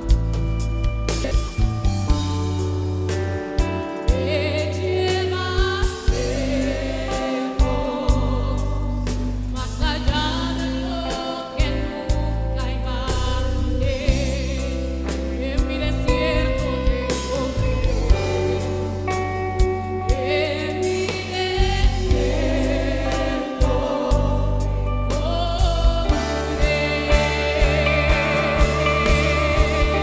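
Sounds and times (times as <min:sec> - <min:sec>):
deep bass notes: 0:00.0 - 0:30.0
gospel choir singing: 0:04.3 - 0:19.4, 0:20.2 - 0:30.0
drum kit hits: 0:26.1 - 0:30.0.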